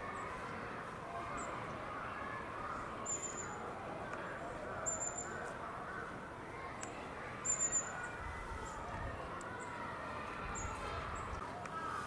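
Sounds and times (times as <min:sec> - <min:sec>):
murmur of distant voices: 0:00.0 - 0:12.0
high bird chirps: 0:03.0 - 0:03.6, 0:04.8 - 0:05.4, 0:07.4 - 0:08.2.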